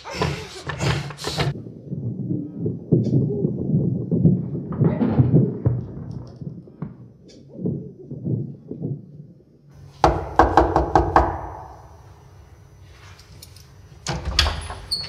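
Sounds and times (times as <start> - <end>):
knuckles knocking on wooden door: 10.0 - 11.6.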